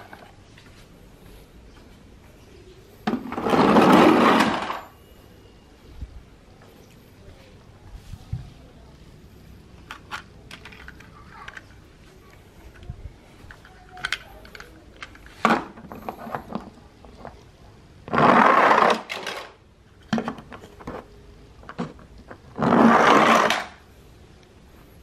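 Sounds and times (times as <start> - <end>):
toy vehicles rolling down a ramp: 3.1 - 5.0, 18.0 - 21.1, 21.7 - 23.8.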